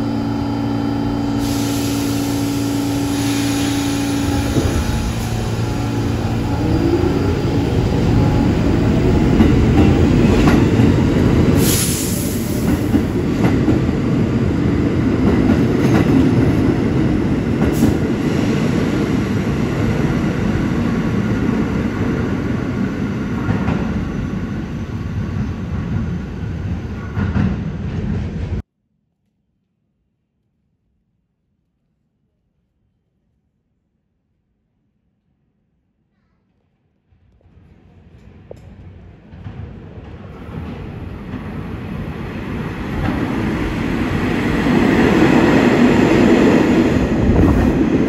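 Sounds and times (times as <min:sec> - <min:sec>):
subway train rumbling: 0:00.0 - 0:28.7, 0:36.9 - 0:48.0
train brake hiss: 0:01.4 - 0:06.0, 0:11.6 - 0:12.7.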